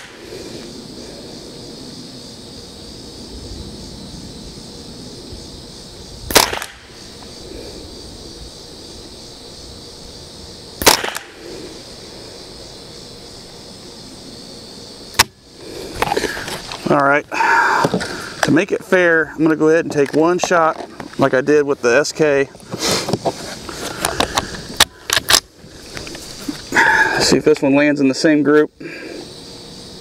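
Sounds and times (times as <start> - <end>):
rifle shots: 6.3 - 7.0, 10.8 - 11.4.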